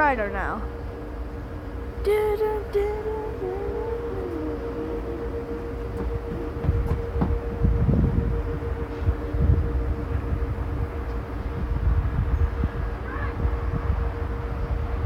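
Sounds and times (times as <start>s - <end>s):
faint steady tone: 0.0s - 15.0s
low rumble: 0.0s - 15.0s
person humming a tune: 2.0s - 11.2s
wind thumps on microphone: 5.8s - 9.7s.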